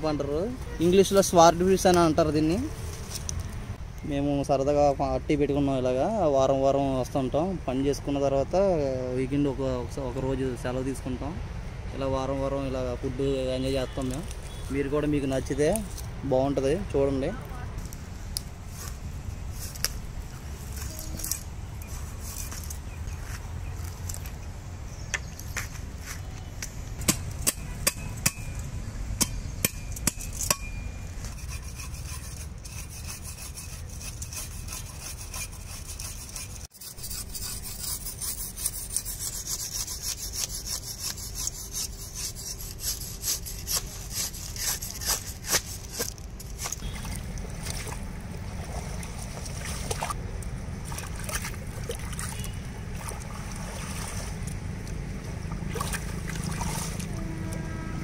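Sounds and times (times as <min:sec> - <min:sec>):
knife sawing through skin and bone: 0:31.2 - 0:47.0.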